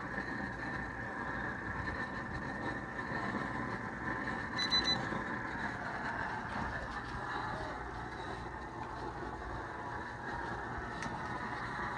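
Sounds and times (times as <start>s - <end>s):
propane torch roaring: 0.0s - 11.9s
thermometer high beeps: 4.5s - 5.2s.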